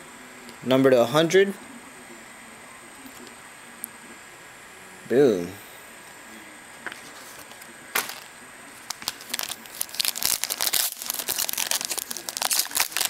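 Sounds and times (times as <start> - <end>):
foil wrapper crinkling: 7.0 - 13.0.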